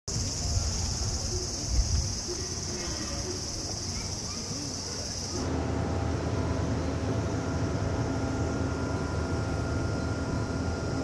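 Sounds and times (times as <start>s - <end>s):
high insect chirring: 0.1s - 5.4s
low mechanical hum: 0.1s - 11.0s.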